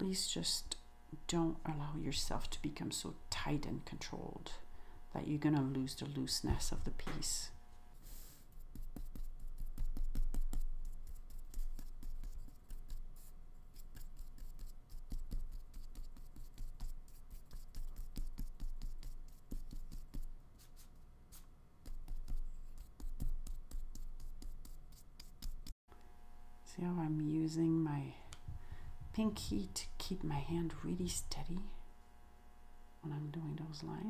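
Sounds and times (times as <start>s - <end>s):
paintbrush strokes on paper: 8.0s - 25.8s.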